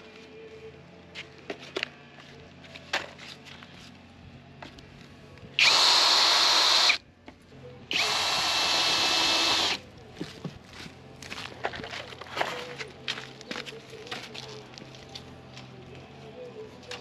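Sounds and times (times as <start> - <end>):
drill driving screws into wood: 5.6 - 7.0, 7.9 - 9.8.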